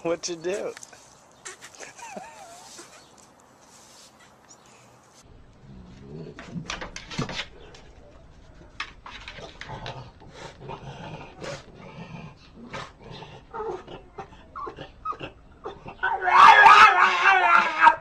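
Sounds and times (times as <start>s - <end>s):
dog claws scratching wooden door: 6.3s - 10.4s.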